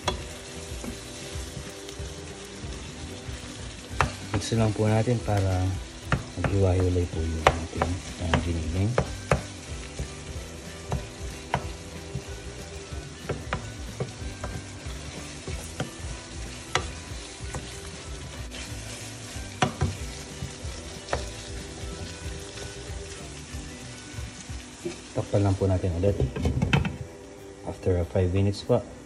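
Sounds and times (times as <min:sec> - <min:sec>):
meat sizzling in a frying pan: 0:00.0 - 0:26.9
spatula knocking against pan: 0:07.4 - 0:09.6.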